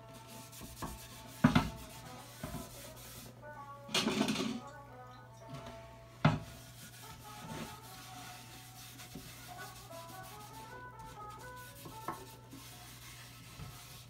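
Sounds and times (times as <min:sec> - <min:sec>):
cloth rubbing on wood: 0:00.1 - 0:03.3, 0:06.3 - 0:14.0.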